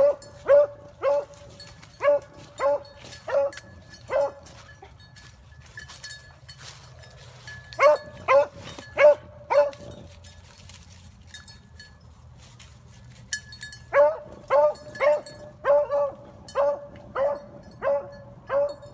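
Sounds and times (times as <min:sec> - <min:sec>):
dog barking: 0:00.0 - 0:01.4, 0:02.0 - 0:04.5, 0:07.8 - 0:09.9, 0:13.9 - 0:18.8.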